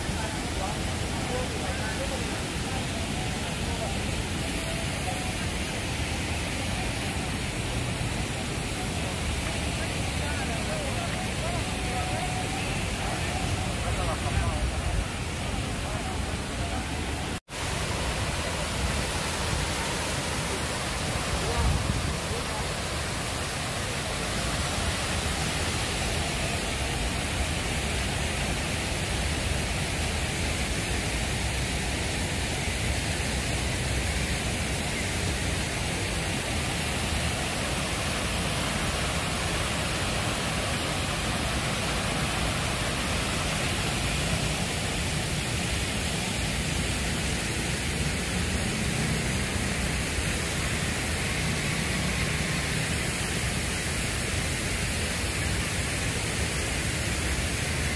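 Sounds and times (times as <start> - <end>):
fountain water splashing: 0.0 - 57.9.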